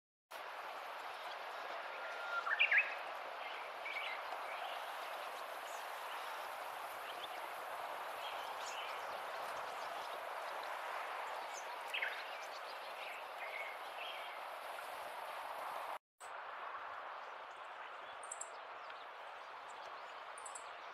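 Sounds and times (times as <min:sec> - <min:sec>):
stream water running over stones: 0:00.4 - 0:16.0
songbird chirps: 0:00.6 - 0:15.9, 0:16.6 - 0:20.9.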